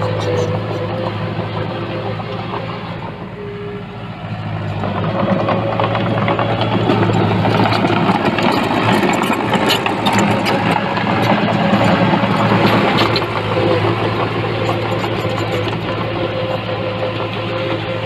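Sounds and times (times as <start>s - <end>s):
heavy machinery diesel engine: 0.0s - 18.0s
metal clanks: 4.7s - 16.7s.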